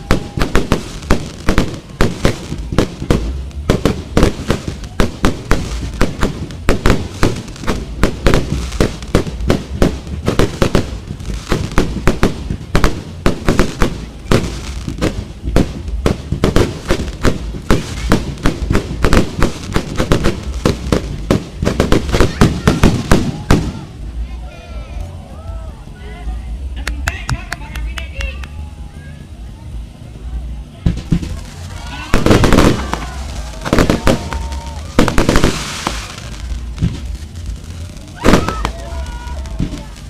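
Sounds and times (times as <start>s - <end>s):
fireworks bangs and crackling: 0.0s - 24.5s, 29.2s - 40.0s.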